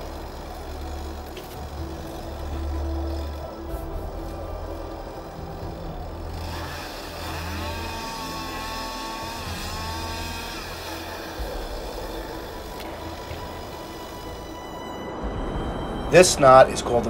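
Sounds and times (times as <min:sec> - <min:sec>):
chainsaw revving: 0:00.0 - 0:14.6
low rumble: 0:11.3 - 0:17.0.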